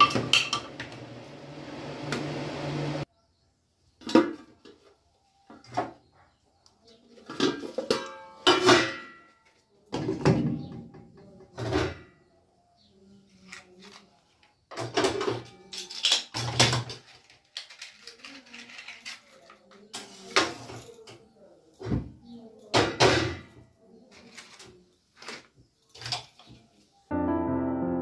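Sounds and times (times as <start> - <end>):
metal bowls clanking: 0.0 - 1.2, 7.3 - 9.3.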